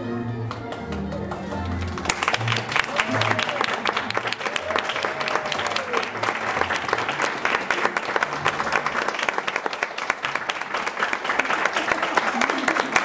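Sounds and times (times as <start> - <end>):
crowd applauding: 0.3 - 13.0.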